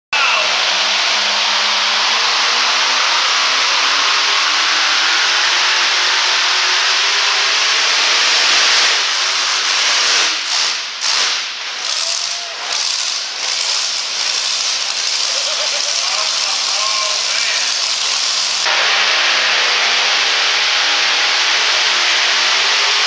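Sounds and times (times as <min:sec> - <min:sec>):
supercharged engine at full throttle: 0:00.0 - 0:23.0.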